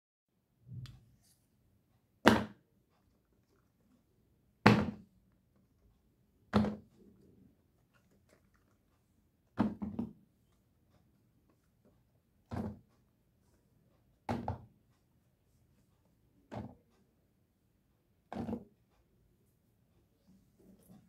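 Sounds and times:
silicone toys thudding on wood: 0:02.2 - 0:02.6, 0:04.6 - 0:05.1, 0:06.5 - 0:06.9, 0:09.6 - 0:10.2, 0:12.5 - 0:12.9, 0:14.2 - 0:14.7, 0:18.3 - 0:18.7.

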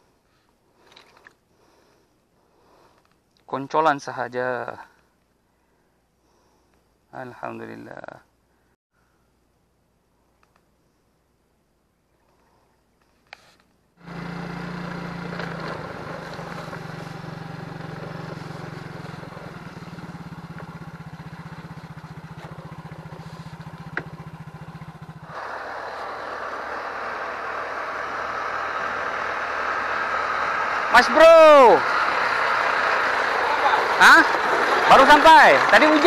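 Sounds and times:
faint click: 0:10.3 - 0:10.7
loud broad engine noise: 0:14.0 - 0:36.0
motor scooter engine running: 0:14.0 - 0:36.0.

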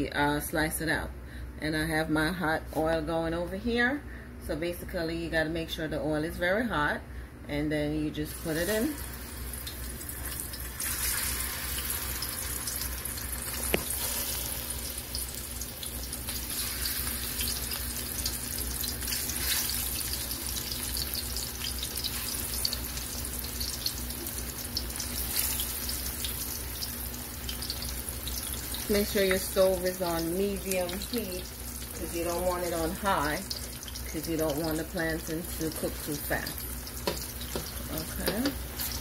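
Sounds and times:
plantain frying in oil: 0:08.3 - 0:39.0.

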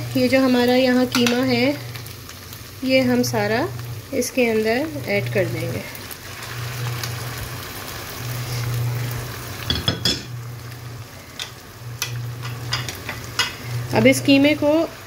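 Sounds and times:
meat sizzling in hot oil: 0:00.0 - 0:15.0
kitchenware clinking against pot: 0:09.7 - 0:10.4, 0:11.4 - 0:13.6.

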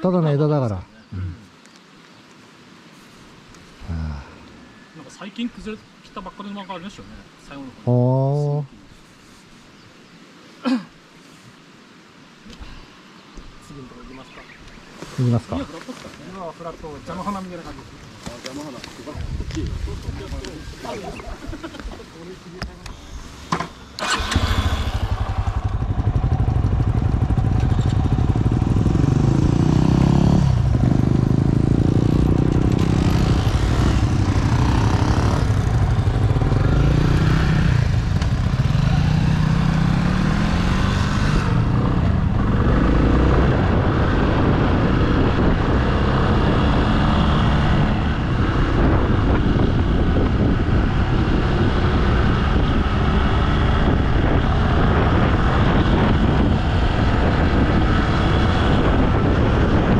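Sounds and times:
motorcycle engine revving: 0:24.0 - 0:59.9.

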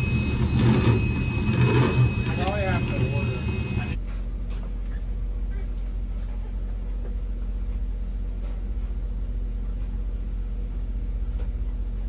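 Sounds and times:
machinery humming: 0:00.0 - 0:04.1.

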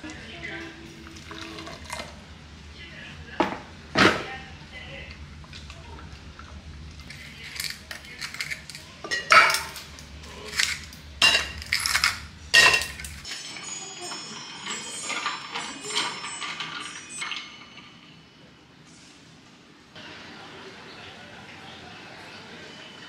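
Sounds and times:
liquid pouring into cup: 0:01.0 - 0:02.1
ice cubes clinking in metal cup: 0:07.0 - 0:09.8, 0:10.4 - 0:13.5.

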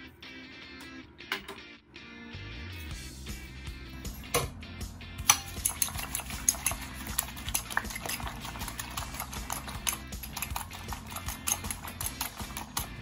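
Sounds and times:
utensil clinking against bowl: 0:05.3 - 0:13.0.

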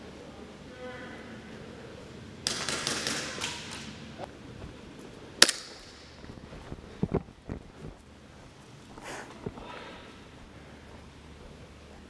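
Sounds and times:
airsoft gunfire: 0:02.4 - 0:04.0.

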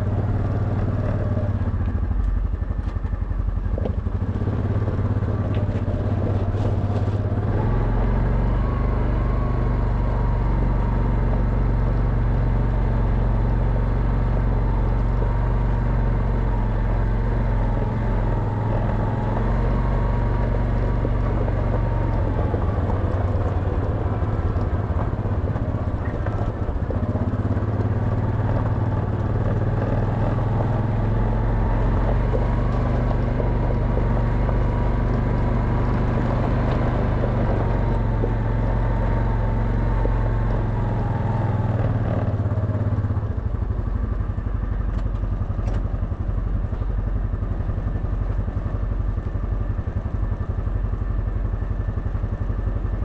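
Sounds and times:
quad bike engine running: 0:00.0 - 0:53.0.

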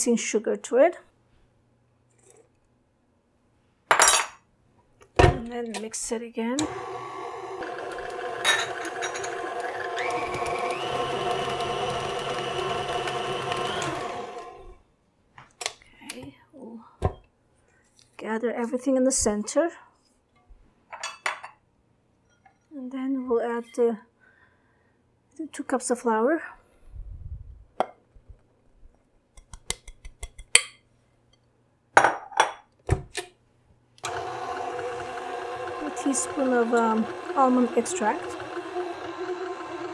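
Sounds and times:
stand mixer motor whine: 0:06.6 - 0:14.8, 0:34.0 - 0:39.9.

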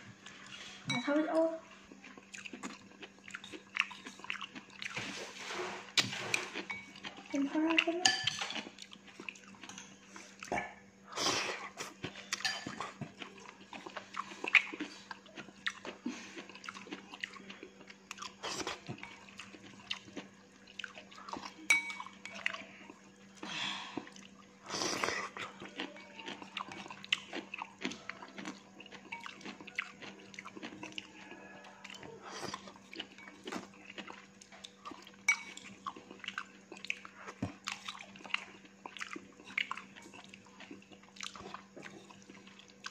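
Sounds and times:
chewing noodles: 0:00.1 - 0:42.9.

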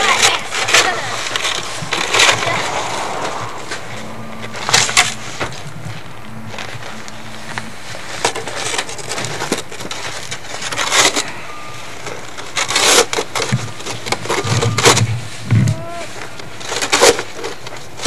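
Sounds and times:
snow shovel scraping snow: 0:00.0 - 0:18.0.

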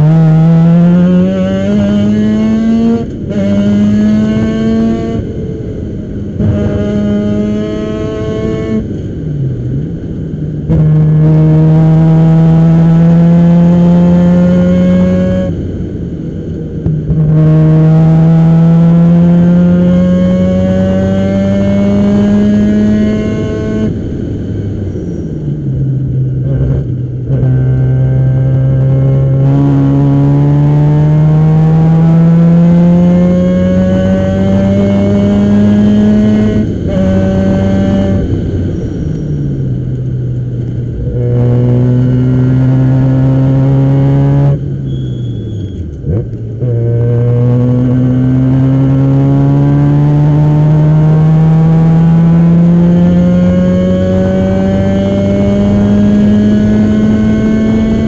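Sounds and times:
rotary race car engine: 0:17.0 - 0:24.2, 0:26.5 - 0:39.3, 0:39.9 - 0:58.0.

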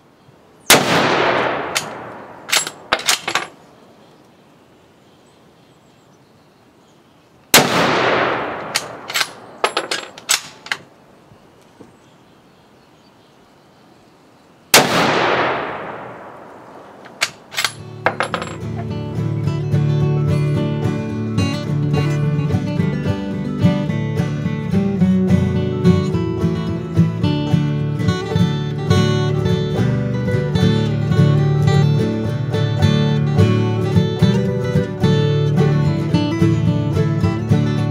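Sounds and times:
rifle shots with echo: 0:00.7 - 0:03.7, 0:07.5 - 0:10.8, 0:14.7 - 0:18.6
rifle bolt clicking: 0:01.4 - 0:03.6, 0:07.6 - 0:10.9, 0:15.2 - 0:18.6.

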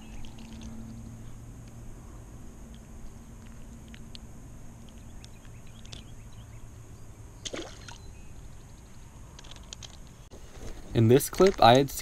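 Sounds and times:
steady low rumble: 0:00.0 - 0:07.4
fish splashing into water: 0:07.4 - 0:08.0.

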